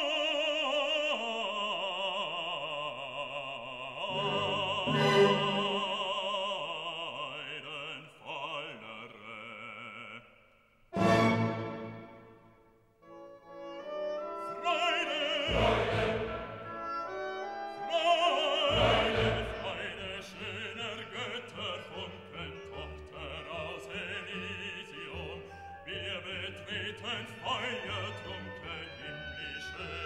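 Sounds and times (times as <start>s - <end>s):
operatic singing with vibrato: 0.0s - 12.6s, 13.4s - 30.0s
classical music: 4.0s - 7.4s, 10.9s - 30.0s.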